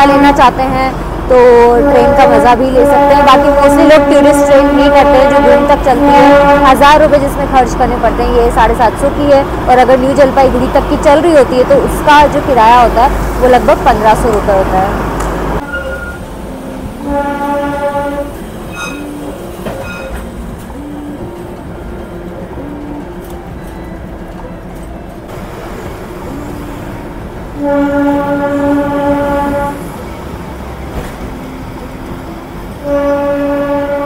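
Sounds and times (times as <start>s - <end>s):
train rumbling: 0.0s - 34.0s
train horn blasts: 1.5s - 7.2s, 16.9s - 21.2s, 27.5s - 30.0s, 32.8s - 34.0s.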